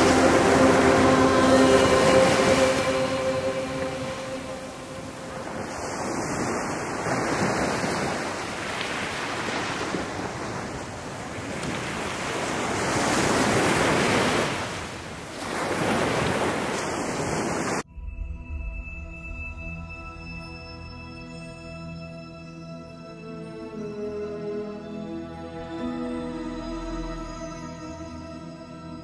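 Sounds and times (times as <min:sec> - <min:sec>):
music: 0:00.0 - 0:06.0, 0:17.9 - 0:29.0
sea surf on rocky shore: 0:00.0 - 0:17.8.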